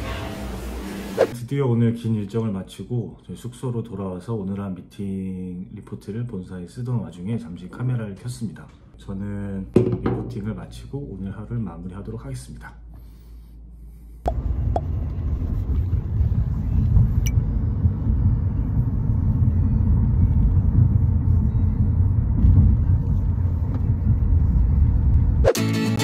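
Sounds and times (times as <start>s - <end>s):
car road rumble: 14.3s - 25.4s.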